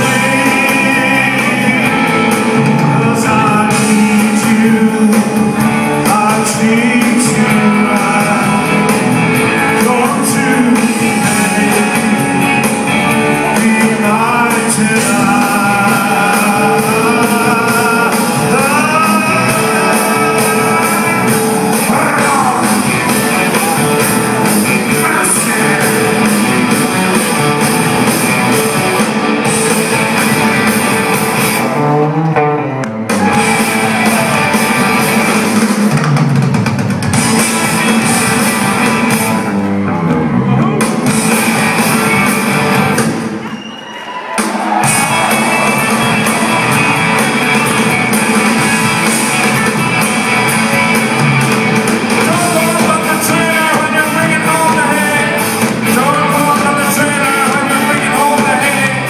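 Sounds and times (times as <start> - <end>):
person singing: 0.0 - 32.5, 52.1 - 59.0
live rock band playing: 0.0 - 59.0.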